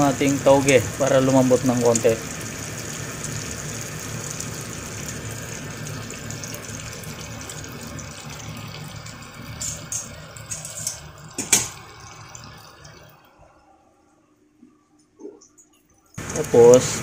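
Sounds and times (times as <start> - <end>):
broth boiling in a pot: 0.0 - 17.0.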